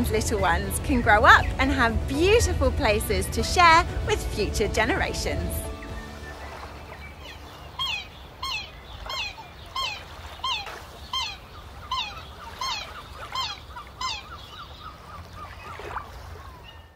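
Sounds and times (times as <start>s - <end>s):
swan high bugling calls: 5.7s - 16.9s.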